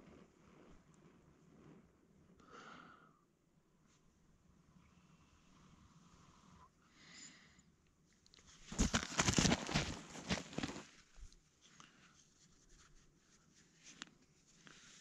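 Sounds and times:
handling noises: 0:08.6 - 0:11.3.

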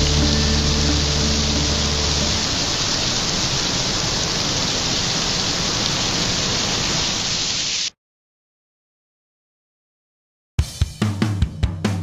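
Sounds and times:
water splattering down waterfall: 0:00.0 - 0:07.9.

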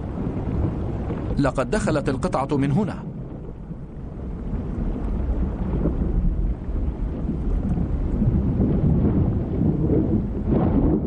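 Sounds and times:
underwater rumbling: 0:00.0 - 0:11.0.

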